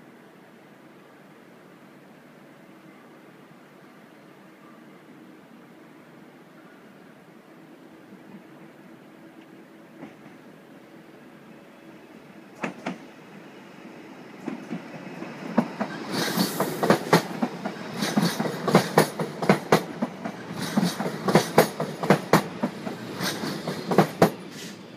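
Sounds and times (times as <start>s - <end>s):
train wheels clacking over joints: 15.5s - 24.7s
brief hiss: 23.0s - 24.9s.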